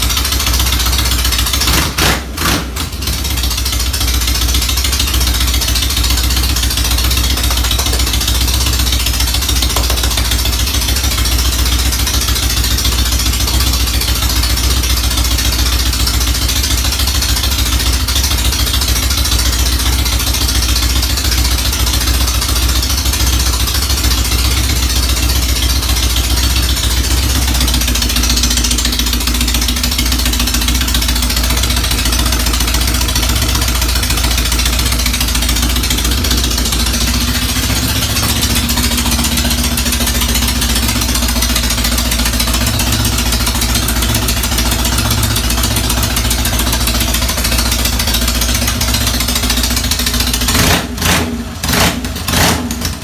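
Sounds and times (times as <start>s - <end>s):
motorcycle engine running: 0.0s - 53.0s.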